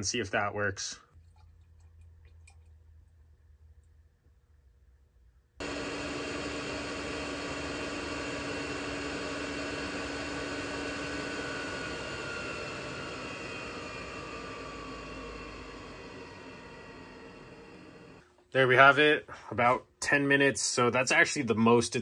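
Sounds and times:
air heater blower rushing: 5.6s - 18.2s.

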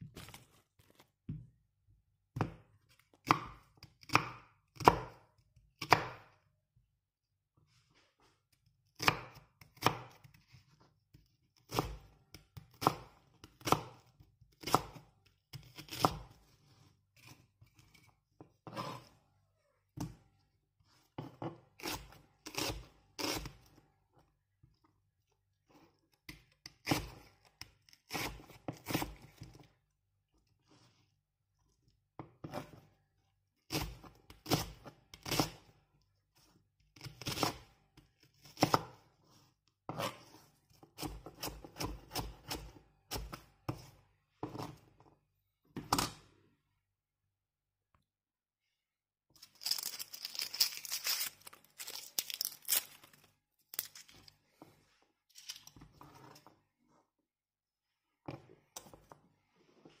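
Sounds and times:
knife slicing onion on cutting board: 5.8s - 6.3s, 9.0s - 10.6s, 11.2s - 19.2s, 21.2s - 23.7s, 33.7s - 35.7s, 38.4s - 44.8s.

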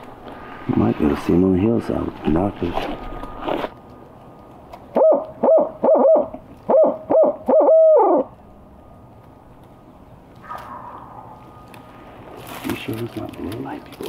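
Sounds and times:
owl hoots on a call: 4.9s - 8.3s, 10.4s - 12.4s.

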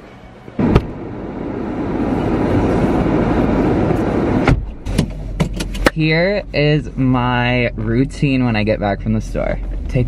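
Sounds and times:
car door shutting: 0.6s - 1.0s, 3.8s - 6.0s.

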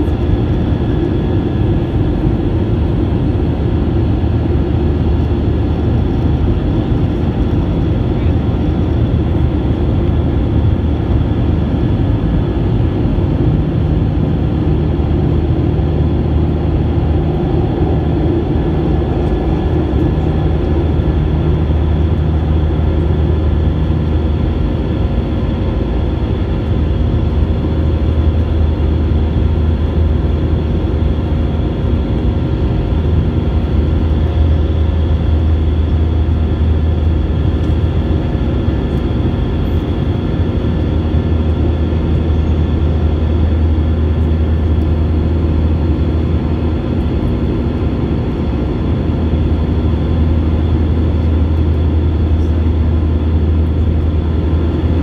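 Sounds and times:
aircraft engines droning: 0.0s - 55.0s
low hum: 0.0s - 55.0s
rushing air: 15.5s - 22.6s.

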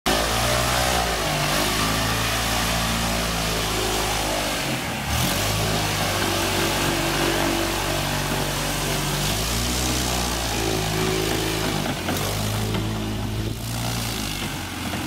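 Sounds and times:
propeller aircraft engine running: 0.1s - 15.0s.

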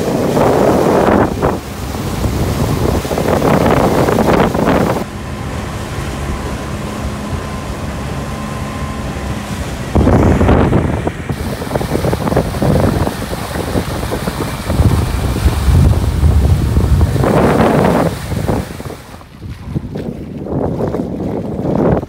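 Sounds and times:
water rushing: 0.0s - 22.0s
wind buffeting microphone: 0.0s - 22.0s
faint engine hum: 0.2s - 22.0s.

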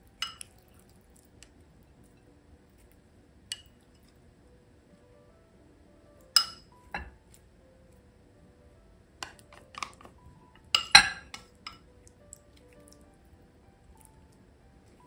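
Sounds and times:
chopsticks clinking against glass bowl: 0.2s - 0.7s, 3.5s - 4.1s, 6.4s - 7.1s, 9.2s - 10.1s, 10.7s - 11.8s.

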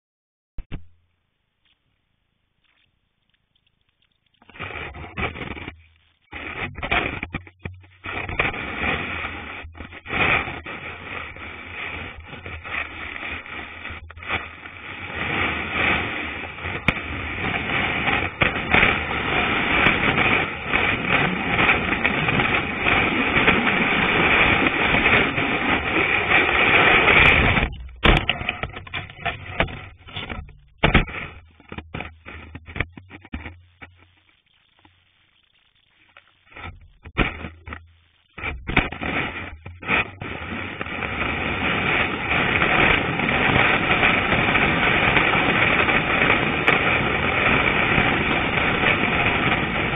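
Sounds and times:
ski sliding over snow: 2.6s - 34.0s, 36.0s - 49.9s.

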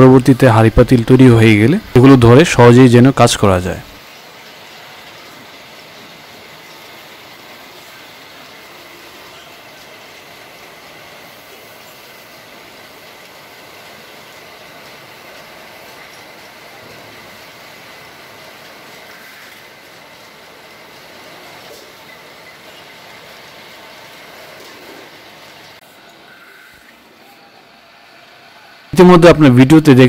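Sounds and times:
faint high whine: 0.0s - 10.6s, 25.8s - 30.0s.

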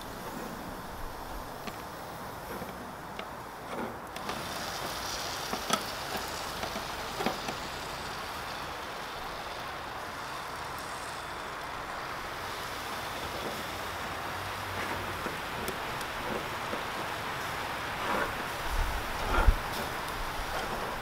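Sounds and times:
meat sizzling over charcoal: 0.0s - 21.0s
steel skewers clicking: 1.6s - 9.7s.

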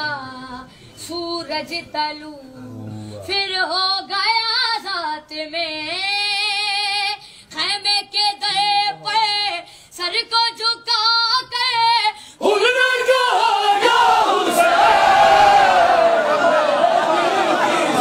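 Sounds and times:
boy singing unaccompanied: 3.2s - 12.2s
crowd of voices: 12.3s - 18.0s.

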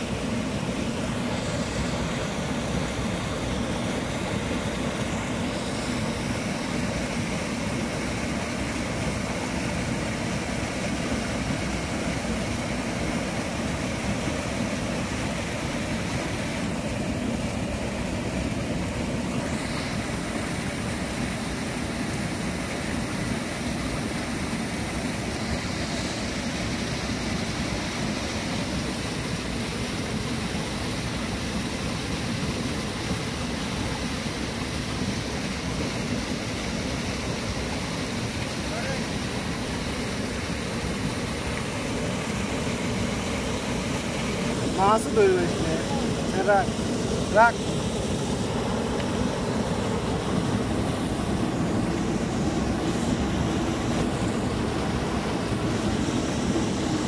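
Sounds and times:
stream rushing: 0.0s - 57.0s.

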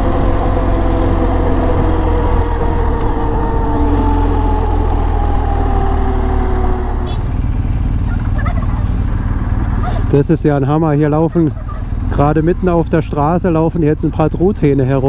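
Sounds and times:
wind rush on microphone: 0.0s - 7.4s
motorcycle engine rumbling: 0.0s - 15.0s
wild turkeys calling: 11.4s - 11.9s.

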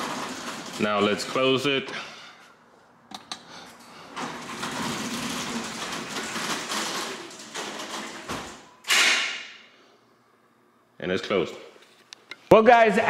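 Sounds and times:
garage door opener running: 0.0s - 1.9s, 3.8s - 9.7s.

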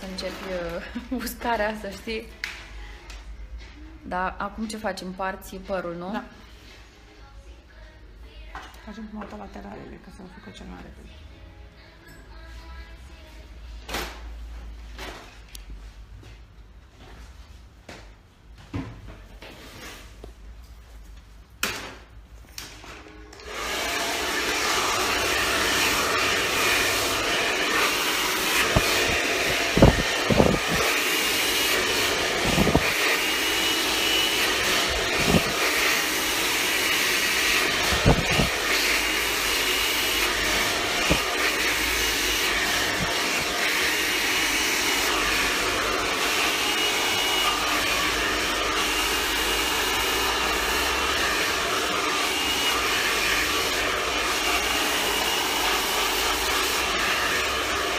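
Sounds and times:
hair dryer running: 0.0s - 2.1s, 23.0s - 57.9s.

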